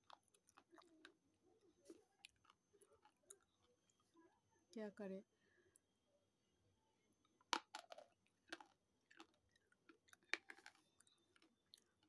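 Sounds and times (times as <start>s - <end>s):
chewing clicks: 8.4s - 12.0s.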